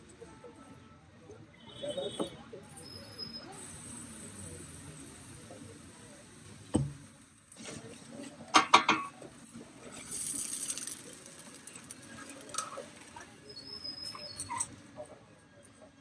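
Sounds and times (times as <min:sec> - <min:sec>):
spreader hissing through batter: 0:03.0 - 0:08.4, 0:09.5 - 0:14.4
utensils knocking on griddle: 0:08.6 - 0:09.1.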